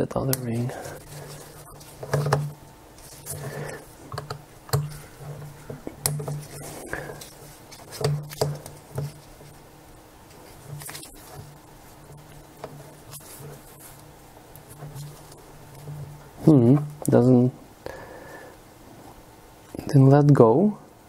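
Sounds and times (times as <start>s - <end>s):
screwdriver clicking and scratching: 0.4s - 3.5s, 4.1s - 9.6s
plastic lens barrel handled: 0.4s - 9.6s, 10.3s - 16.2s.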